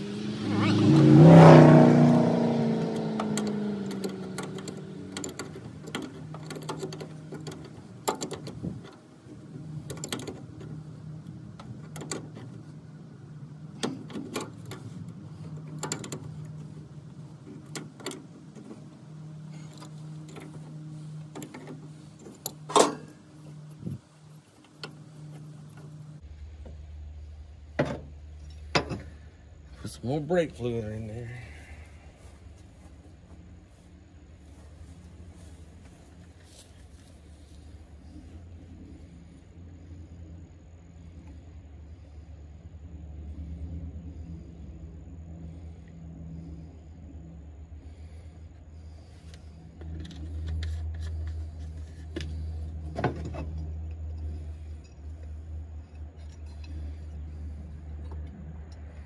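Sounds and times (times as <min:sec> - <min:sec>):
car engine dying: 0:00.0 - 0:59.0
steady low hum: 0:00.0 - 0:59.0.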